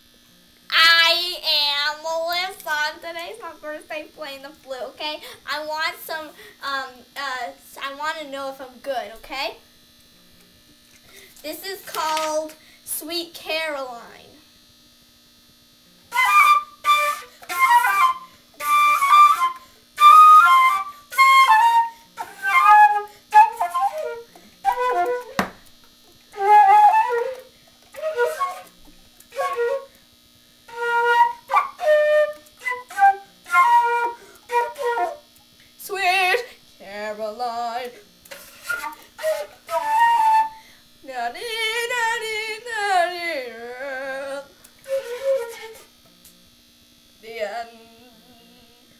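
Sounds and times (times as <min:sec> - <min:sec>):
flute halting notes: 0:16.1 - 0:25.5, 0:26.3 - 0:29.9, 0:30.7 - 0:35.2, 0:38.6 - 0:40.6, 0:44.8 - 0:45.8.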